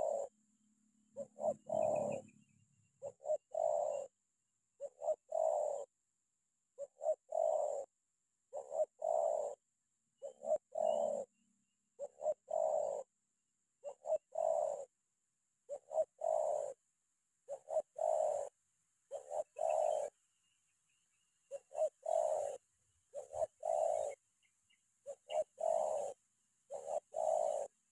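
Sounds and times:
dove cooing: 0.0s - 0.4s, 1.0s - 4.2s, 4.8s - 6.0s, 6.8s - 7.9s, 8.5s - 11.4s, 12.0s - 13.2s, 13.8s - 15.0s, 15.7s - 20.2s, 21.4s - 27.9s.

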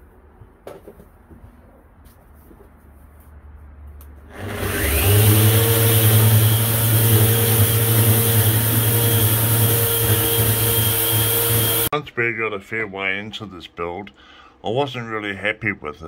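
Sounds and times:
electric orbital sander whining: 4.3s - 11.9s.

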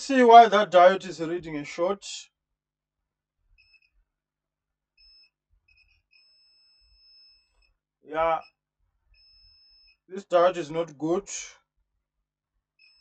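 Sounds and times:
multimeter continuity beeps: 3.6s - 4.0s, 5.0s - 8.6s, 9.2s - 10.0s, 12.8s - 13.0s.

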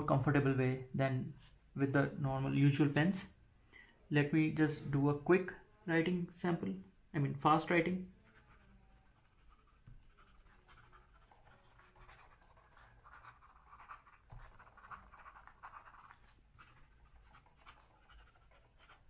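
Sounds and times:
fountain pen scratching on paper: 8.2s - 19.0s.

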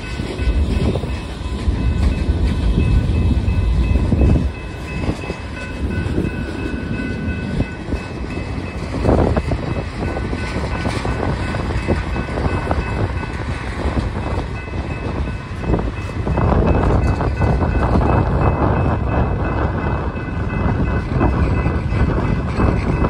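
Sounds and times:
freight train rumbling past: 0.0s - 23.0s
train car clank: 0.0s - 23.0s
wheels clicking over rail joints: 0.0s - 23.0s.

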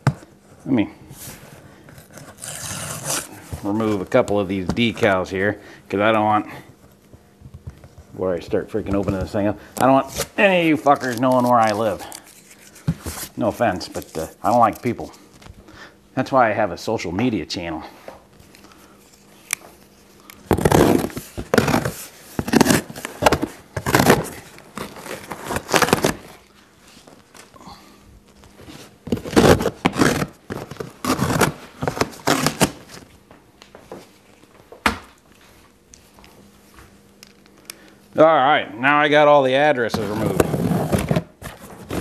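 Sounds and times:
labels ripping off cardboard: 1.9s - 4.1s, 9.9s - 15.0s, 20.3s - 26.5s, 28.7s - 33.0s, 40.0s - 42.0s.

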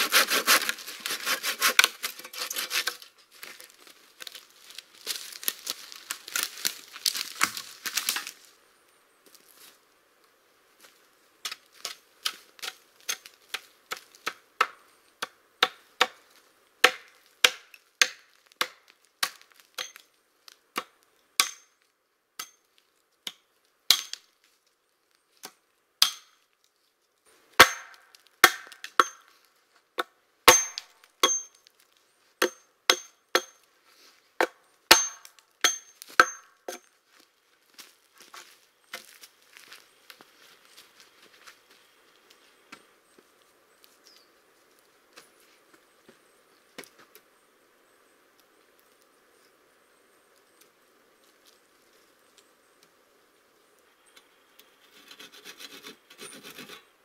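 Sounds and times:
hatchet chopping wood: 0.0s - 3.0s, 11.5s - 16.2s, 16.8s - 20.0s, 20.8s - 21.7s, 23.3s - 24.2s, 25.4s - 26.4s, 27.6s - 29.3s, 30.0s - 31.6s, 32.4s - 33.6s, 34.4s - 36.8s.

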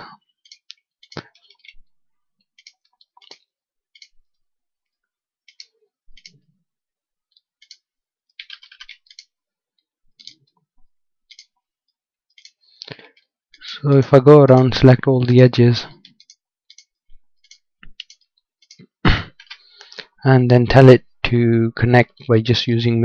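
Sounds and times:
computer mouse clicks: 0.4s - 1.8s, 2.4s - 4.2s, 5.4s - 6.4s, 7.3s - 9.4s, 10.2s - 10.6s, 11.3s - 11.6s, 12.3s - 13.3s, 16.0s - 20.0s.

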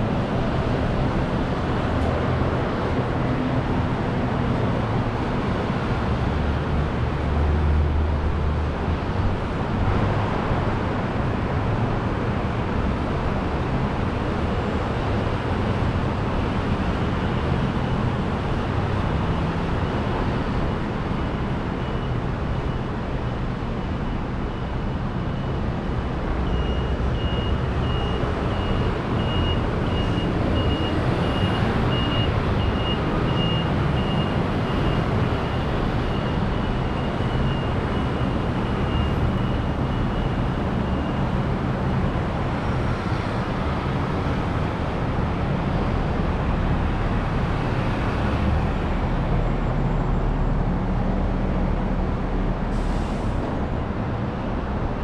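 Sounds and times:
city street traffic: 0.0s - 55.0s.

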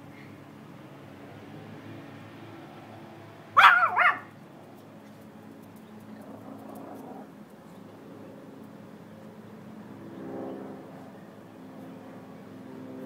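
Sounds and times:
small dog yapping: 3.6s - 4.3s.

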